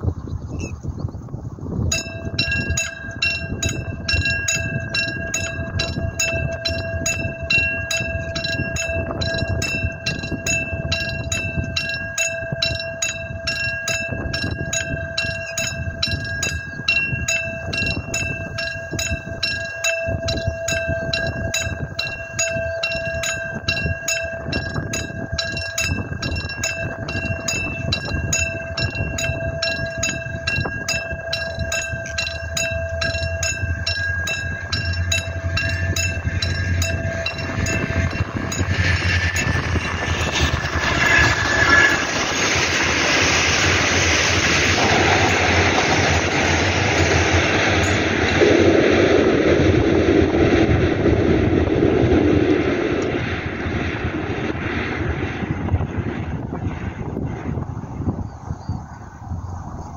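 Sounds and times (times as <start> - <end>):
approaching train rumble: 0.0 - 59.9
level crossing bell dinging: 2.0 - 42.0.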